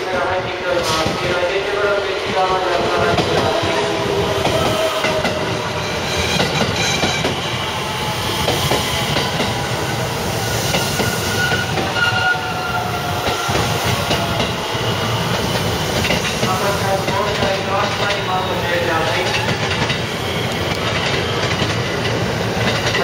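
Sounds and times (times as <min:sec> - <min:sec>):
train wheels clacking over rail joints: 0:19.1 - 0:23.0.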